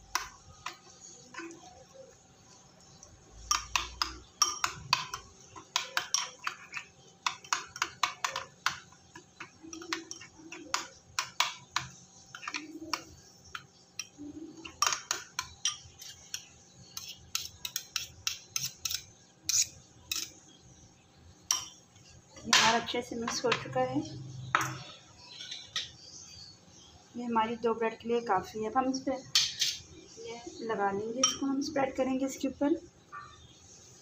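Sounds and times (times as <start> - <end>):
spoon scraping a bowl: 0.1 - 20.4, 24.3 - 26.0, 29.3 - 29.9.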